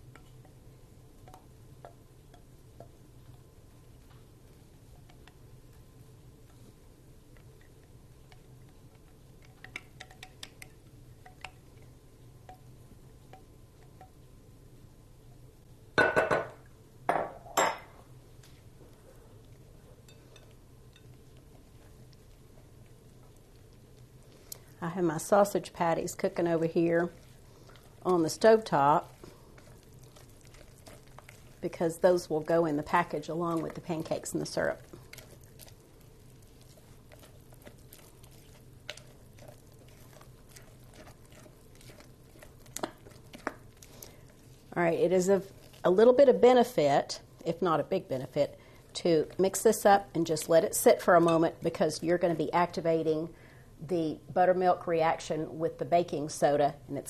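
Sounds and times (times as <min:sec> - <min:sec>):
spatula stirring batter: 0:00.0 - 0:14.3, 0:18.8 - 0:52.8
low steady hum: 0:00.0 - 0:57.0
spatula tapping glass bowl: 0:09.4 - 0:11.8, 0:12.4 - 0:12.7, 0:13.3 - 0:14.2
glass kitchenware clinking: 0:16.0 - 0:17.9.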